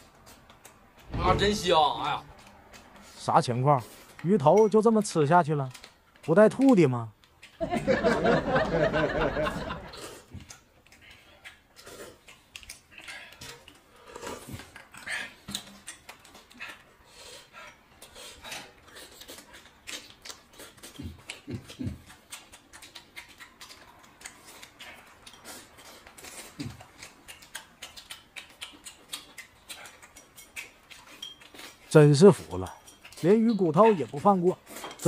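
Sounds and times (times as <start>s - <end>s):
low thuds: 1.0s - 2.0s
slurping and chewing: 2.3s - 4.3s, 7.2s - 7.6s, 9.8s - 35.0s.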